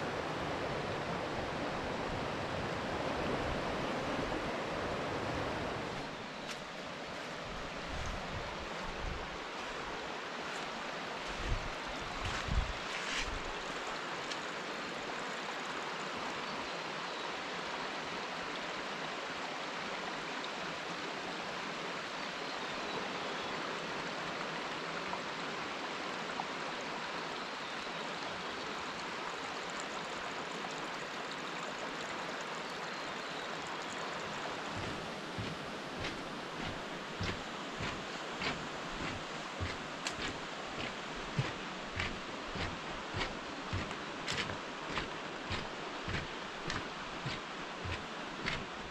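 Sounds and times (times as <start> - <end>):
river water rushing over rocks: 0.0 - 22.1, 33.6 - 48.9
soft low bumps: 34.7 - 48.9.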